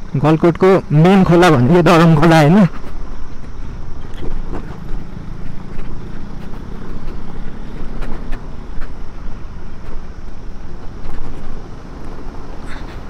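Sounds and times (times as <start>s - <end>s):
scooter engine running: 2.7s - 13.0s.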